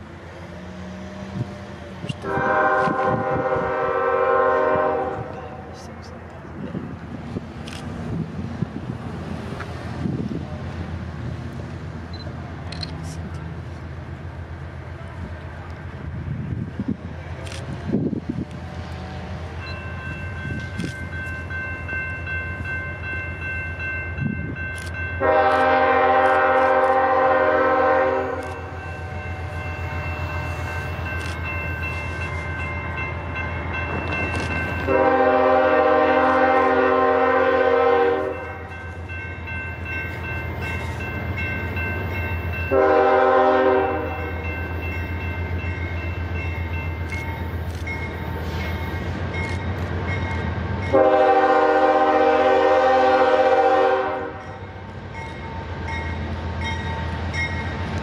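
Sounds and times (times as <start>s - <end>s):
locomotive engine rumble: 0.0s - 58.0s
locomotive air horn blasts: 2.2s - 5.8s, 25.2s - 30.6s, 34.9s - 38.8s, 42.7s - 44.4s, 50.9s - 54.6s.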